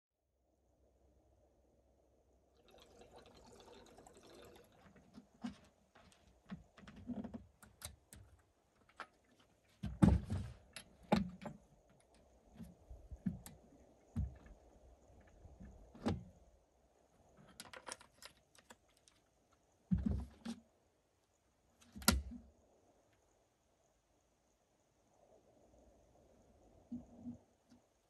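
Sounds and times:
fuel pouring hiss: 2.6s - 5.1s
clicks and knocks of handling: 5.4s - 13.6s, 17.4s - 20.6s.

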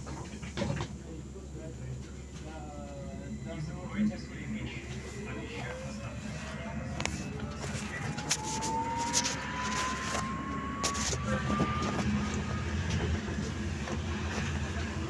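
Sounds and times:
low road rumble: 4.5s - 15.0s
electric motor whine: 5.0s - 15.0s.

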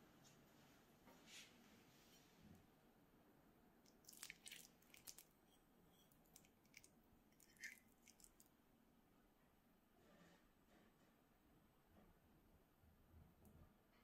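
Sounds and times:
spoon squishing potato salad: 3.9s - 8.5s.

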